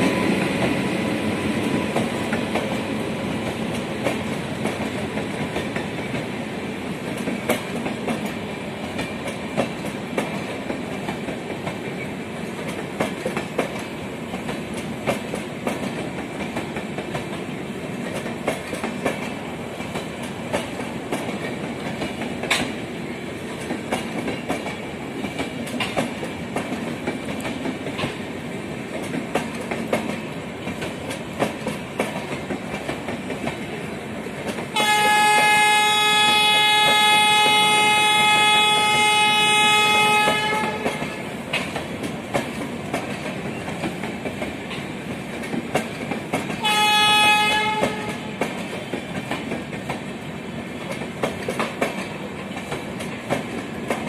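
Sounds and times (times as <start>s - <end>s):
train coaches rumbling past: 0.0s - 54.0s
wheels clicking over rail joints: 1.6s - 35.5s, 40.2s - 54.0s
locomotive horn blast: 34.8s - 41.2s, 46.6s - 48.3s.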